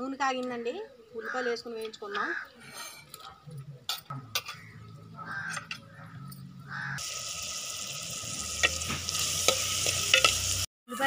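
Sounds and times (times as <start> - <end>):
crow cawing: 1.2 - 1.6, 2.2 - 2.6, 4.5 - 7.0
onions sizzling in hot oil: 7.0 - 11.0.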